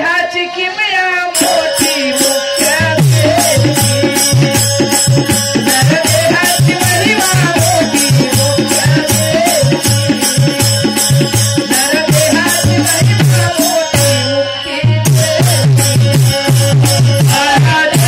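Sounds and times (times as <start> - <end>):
jingling hand percussion: 1.3 - 18.0
drum: 1.4 - 18.0.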